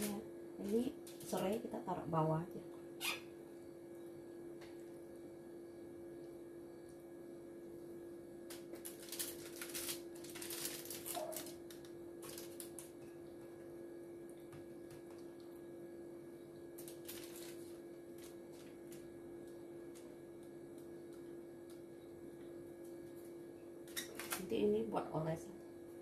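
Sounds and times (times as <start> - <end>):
aluminium foil crinkling: 0.0 - 1.7, 8.4 - 13.5, 16.7 - 21.2, 23.9 - 24.6
steady low hum: 0.0 - 26.0.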